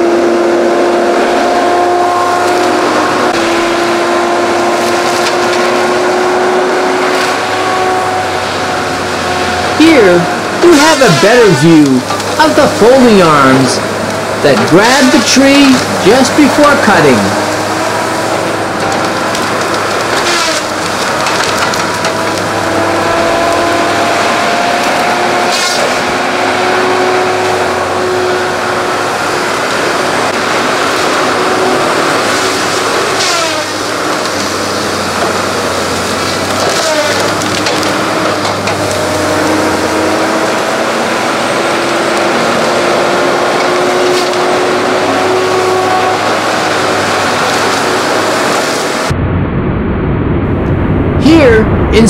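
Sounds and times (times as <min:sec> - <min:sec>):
heavy machine engine and hydraulics: 0:02.1 - 0:52.0
wood cracking: 0:04.6 - 0:06.0, 0:17.5 - 0:23.7, 0:31.9 - 0:39.6, 0:42.0 - 0:44.6.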